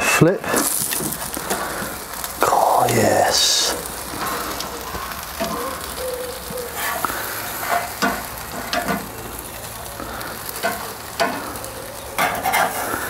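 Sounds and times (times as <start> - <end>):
chicken wings sizzling on grill: 0.0 - 13.0
metal tongs clicking and scraping: 12.2 - 12.8.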